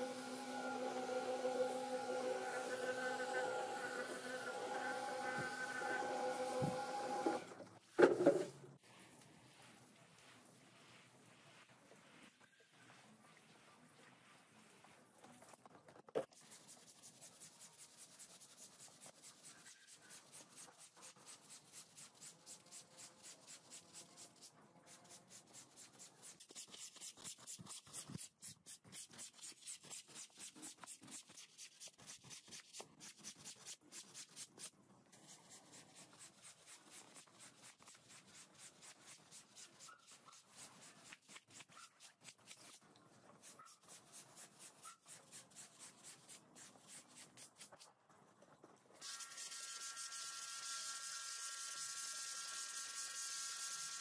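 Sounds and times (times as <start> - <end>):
brush scrubbing wet rug: 8.8 - 15.8, 35.2 - 47.9.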